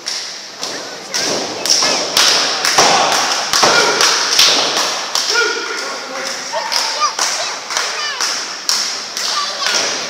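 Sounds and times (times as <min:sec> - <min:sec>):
thuds and slaps of blows: 0:00.1 - 0:05.4.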